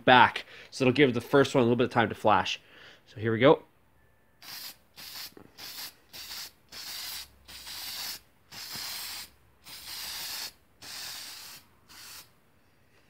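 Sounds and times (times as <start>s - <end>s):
aerosol can spraying: 4.4s - 12.3s.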